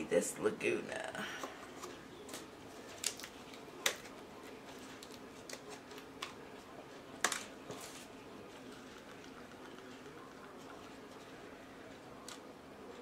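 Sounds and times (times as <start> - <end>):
faint steady hum: 0.0 - 13.0
plastic cups clicking and tapping: 7.2 - 8.0.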